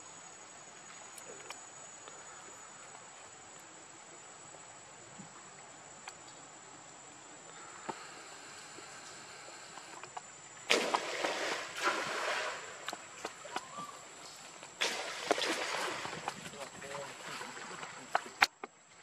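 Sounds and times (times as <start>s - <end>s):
faint steady hiss: 0.0s - 19.0s
water splashing and sloshing: 7.6s - 19.0s.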